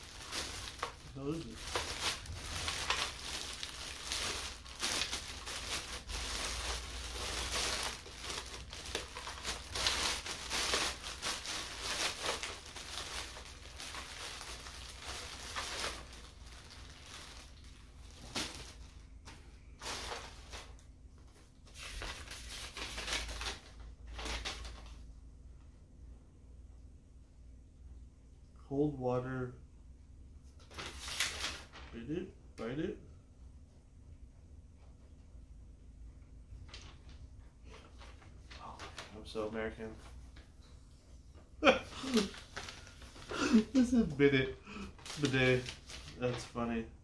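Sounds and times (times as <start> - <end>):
plastic bag crinkling: 0.0 - 19.0, 41.6 - 46.7.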